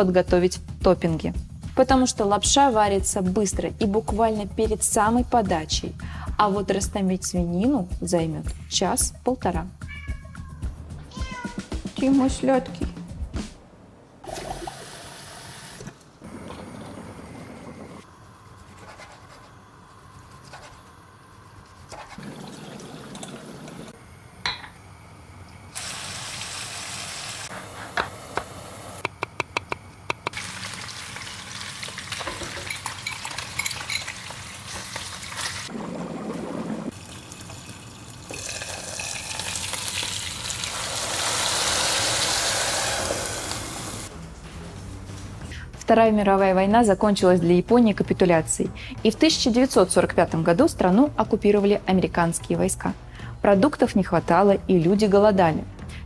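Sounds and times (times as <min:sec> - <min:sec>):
water boiling in pots: 0:21.2 - 0:24.0, 0:25.7 - 0:29.0, 0:30.2 - 0:44.1
meat sizzling in a frying pan: 0:25.8 - 0:27.5, 0:30.4 - 0:35.7, 0:37.0 - 0:44.1.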